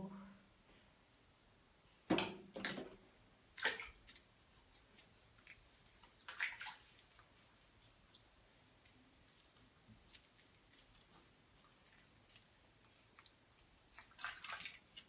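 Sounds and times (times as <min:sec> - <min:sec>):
wet splashes and squelches: 0:03.4 - 0:15.0.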